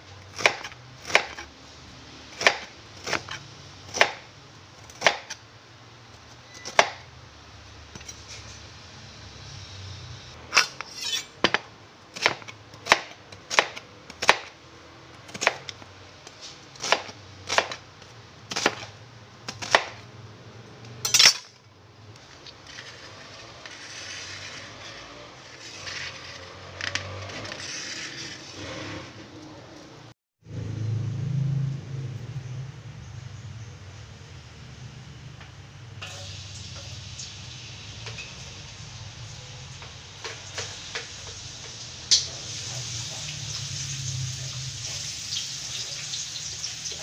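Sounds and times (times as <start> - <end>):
knife chopping on cutting board: 0.3 - 1.5
handling and scraping sounds: 8.0 - 8.8, 10.5 - 11.7, 21.0 - 30.0.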